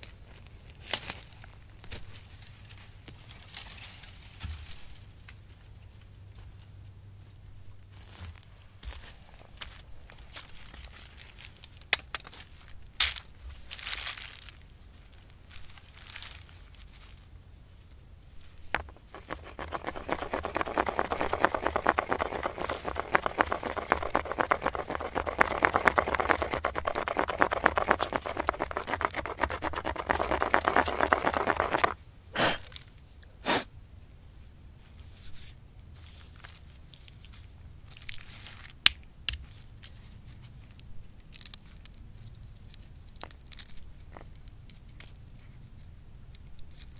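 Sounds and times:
stone scraping on stone: 0:18.7 - 0:32.0.

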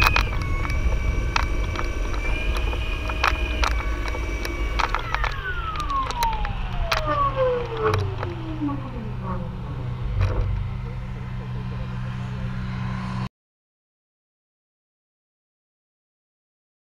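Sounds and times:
sharp clicks: 0:00.0 - 0:08.6
electric motor whine spinning down: 0:00.0 - 0:13.3
low rumble: 0:00.0 - 0:13.3.

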